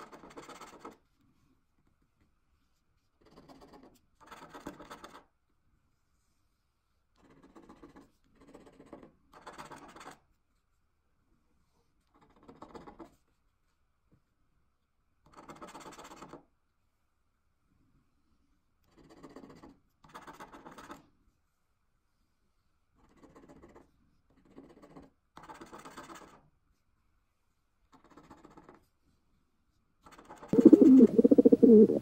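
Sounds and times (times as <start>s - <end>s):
scratching a scratch card: 3.2s - 5.3s, 18.9s - 21.0s, 23.0s - 26.4s.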